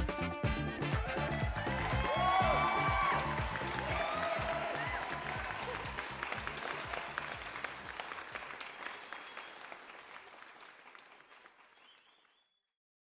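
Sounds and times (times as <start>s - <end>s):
low bass beats: 0.0s - 5.9s
audience applauding: 0.7s - 12.4s.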